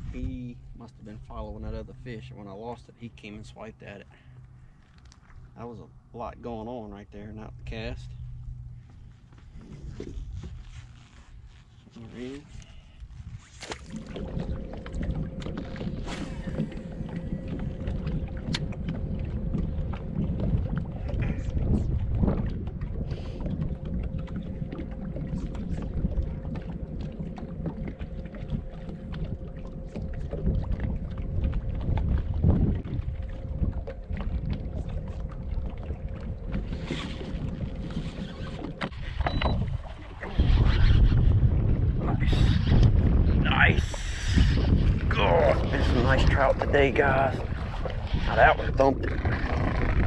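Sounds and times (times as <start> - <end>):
wind buffeting microphone: 0.0 - 2.2, 12.2 - 50.0
faint steady hum: 0.0 - 40.4
rumble: 0.0 - 50.0
small waves lapping against hull: 0.0 - 50.0.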